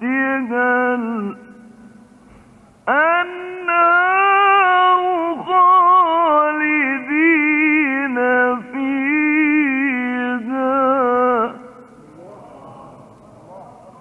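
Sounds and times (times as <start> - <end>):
man chanting: 2.9 - 14.0.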